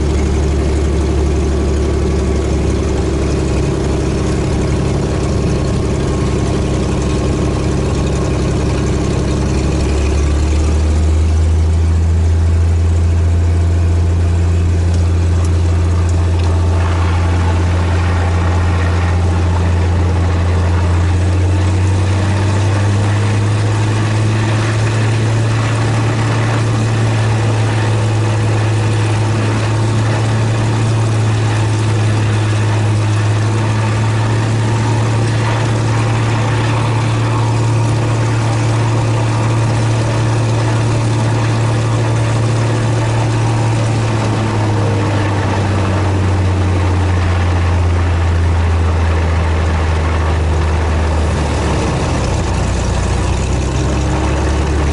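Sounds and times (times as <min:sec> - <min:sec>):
aircraft engine and propeller: 0:00.0 - 0:54.9.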